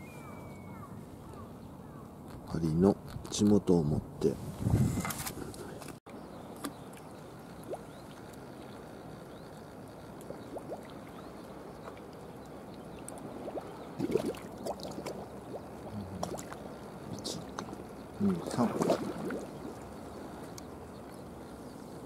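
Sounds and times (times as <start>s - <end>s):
seawater lapping at a wall: 6.6s - 22.0s
short splashes and knocks: 13.1s - 15.6s, 16.2s - 16.6s, 17.4s - 19.8s.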